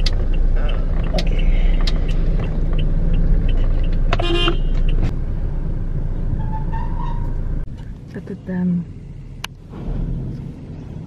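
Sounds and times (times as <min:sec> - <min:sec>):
car idling: 0:00.0 - 0:11.0
car horn toot: 0:04.2 - 0:04.8.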